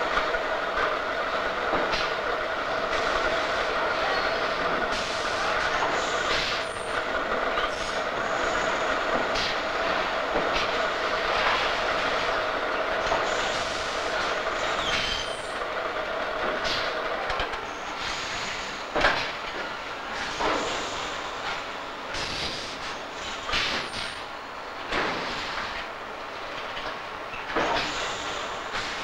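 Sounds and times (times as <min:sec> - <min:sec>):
packaging machinery humming: 0:00.0 - 0:17.1
machine hisses: 0:04.3 - 0:07.0, 0:07.6 - 0:12.4, 0:13.1 - 0:15.6, 0:17.7 - 0:18.9, 0:20.1 - 0:24.2, 0:27.6 - 0:29.0.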